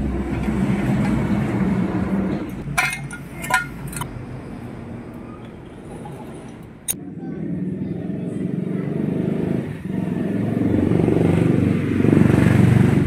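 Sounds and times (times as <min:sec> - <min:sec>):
metal tools clinking on metal: 0:02.5 - 0:04.1.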